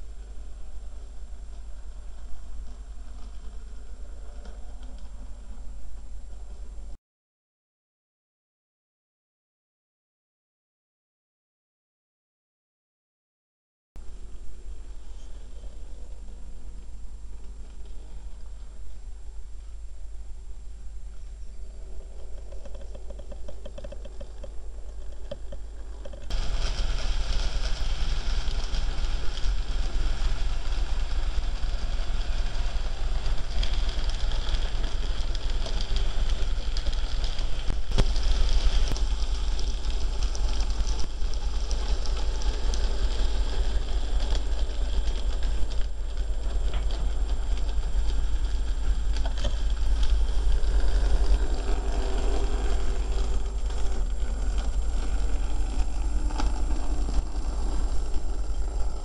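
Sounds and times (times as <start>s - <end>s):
model trains running on track: 0.0s - 6.9s, 21.7s - 59.0s
constant low hum: 0.0s - 7.0s, 14.0s - 59.0s.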